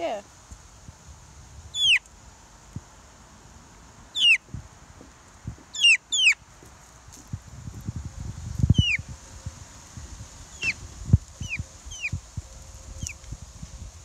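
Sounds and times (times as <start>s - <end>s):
chick peeping: 1.7s - 2.1s, 4.2s - 4.6s, 5.7s - 6.4s, 8.6s - 9.4s, 10.5s - 12.2s, 13.0s - 13.3s.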